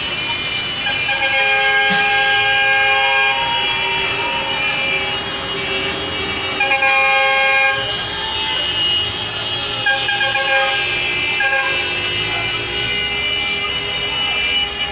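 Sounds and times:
slow-moving traffic: 0.0s - 14.9s
vehicle horns honking: 1.0s - 14.9s.

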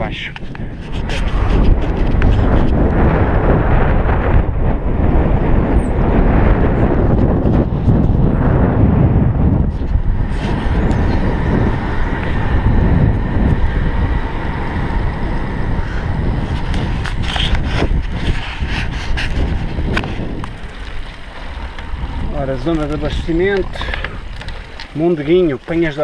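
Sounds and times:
tyre and road rumble: 0.0s - 26.0s
wind buffeting microphone: 0.0s - 26.0s
bike clicks and knocks: 16.5s - 26.0s.

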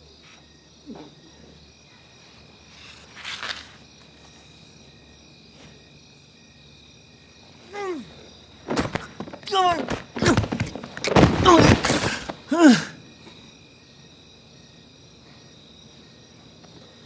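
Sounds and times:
crickets chirping: 0.0s - 17.0s
man grunting: 7.7s - 8.2s, 11.4s - 13.0s
falling groan: 7.7s - 13.0s
breathy noise: 7.7s - 13.4s.

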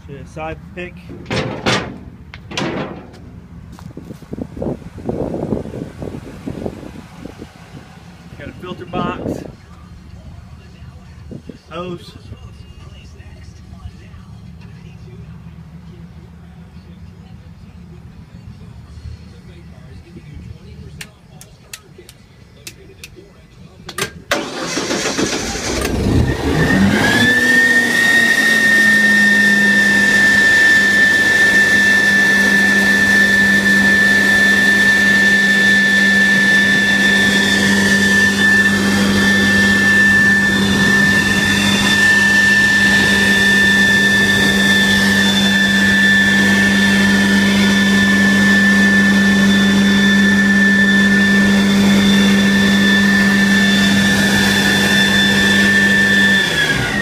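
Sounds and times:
high steady whine: 0.0s - 57.0s
engine starting and running: 23.9s - 57.0s.

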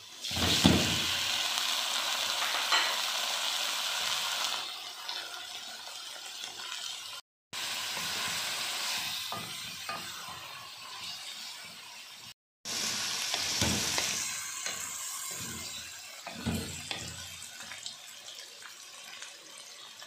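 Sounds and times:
chicken sizzling in hot oil: 0.0s - 20.0s
wooden spoon stirring in pan: 13.2s - 18.4s.

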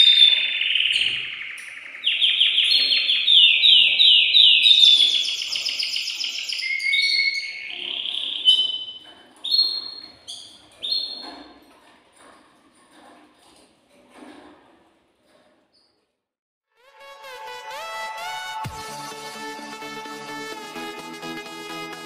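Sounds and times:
canary singing: 0.0s - 11.5s.

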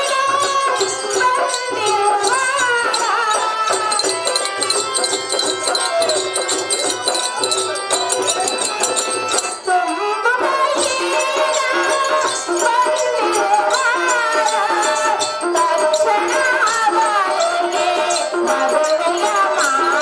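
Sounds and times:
metallic jingling: 0.4s - 10.2s, 10.8s - 20.0s
wavering melody line: 2.1s - 10.0s.

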